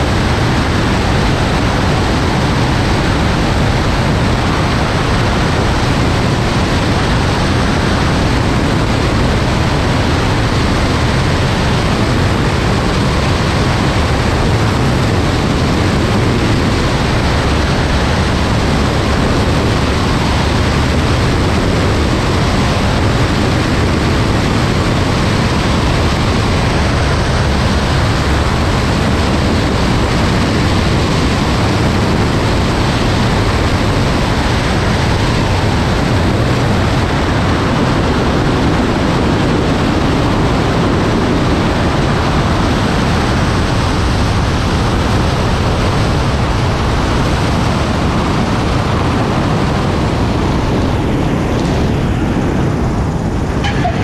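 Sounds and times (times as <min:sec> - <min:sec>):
airplane engine and propeller: 0:00.0 - 0:54.0
wind rushing: 0:00.0 - 0:54.0.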